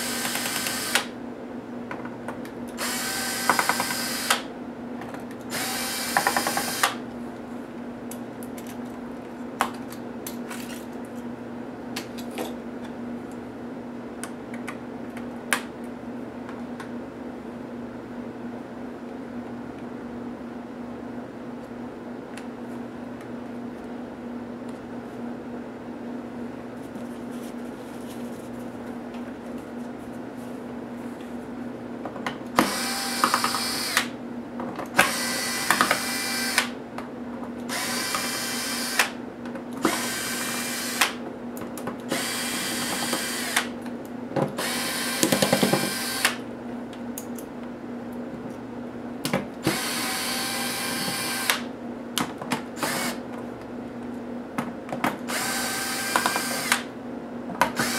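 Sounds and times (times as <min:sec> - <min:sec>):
electric screwdriver running: 0:00.0 - 0:01.1, 0:02.8 - 0:04.4, 0:05.5 - 0:07.0, 0:32.6 - 0:34.1, 0:35.0 - 0:36.7, 0:37.7 - 0:39.1, 0:39.9 - 0:41.1, 0:42.1 - 0:43.7, 0:44.6 - 0:46.4, 0:49.7 - 0:51.6, 0:52.8 - 0:53.2, 0:55.3 - 0:56.9
faint steady hum: 0:00.0 - 0:57.9.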